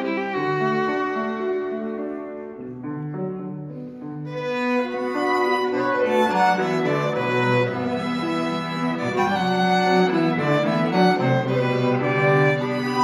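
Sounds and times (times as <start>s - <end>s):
string ensemble playing: 0.0s - 2.0s, 4.3s - 13.0s.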